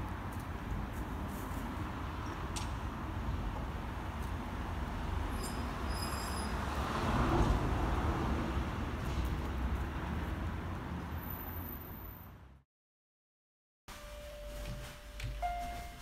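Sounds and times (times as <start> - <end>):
distant road traffic rumble: 0.0 - 12.6.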